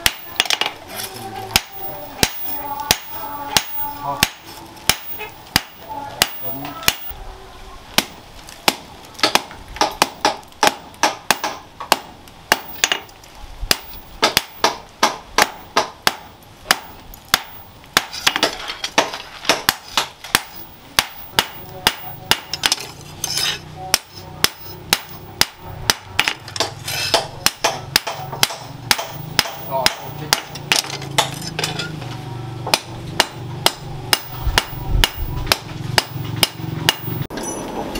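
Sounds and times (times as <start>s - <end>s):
hammer striking metal on anvil: 1.5s - 7.1s, 13.7s - 32.0s, 32.6s - 37.6s.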